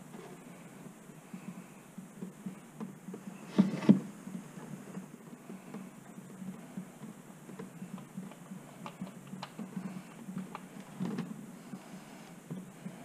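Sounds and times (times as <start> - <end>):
faint low hum: 0.0 - 13.0
wires clicking and tapping: 4.2 - 11.3.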